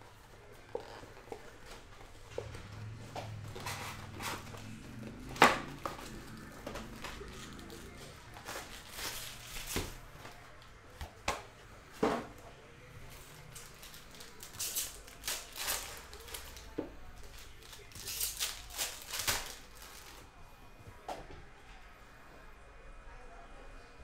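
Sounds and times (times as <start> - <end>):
foil packs crinkling: 3.4 - 10.5, 13.1 - 20.3.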